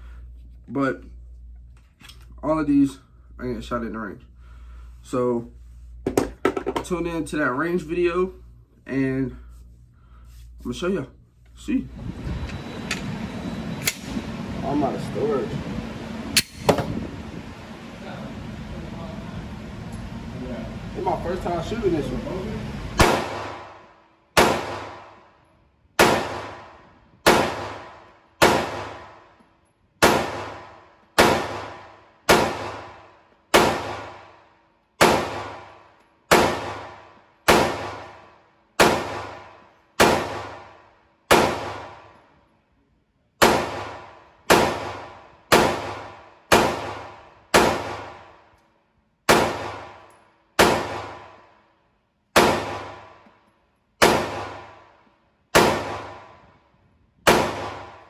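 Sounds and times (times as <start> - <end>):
pistol shots ringing indoors: 23.0 - 29.4, 30.0 - 42.4, 43.4 - 48.6, 49.2 - 56.6, 57.2 - 58.0.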